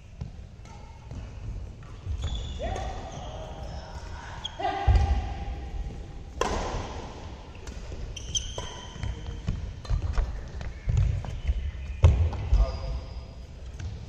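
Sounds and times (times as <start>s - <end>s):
shoes squeaking: 0.0s - 5.1s, 7.5s - 14.0s
racket striking shuttlecock: 6.4s - 9.2s.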